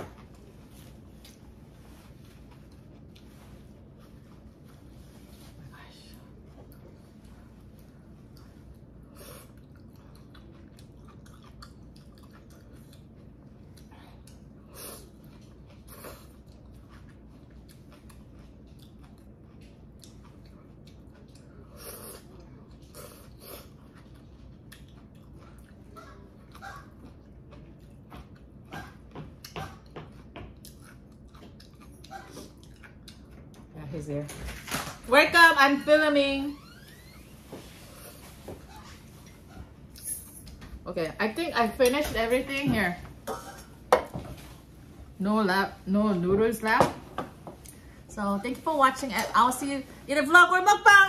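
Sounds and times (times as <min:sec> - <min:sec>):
quiet chewing: 0:00.2 - 0:33.8.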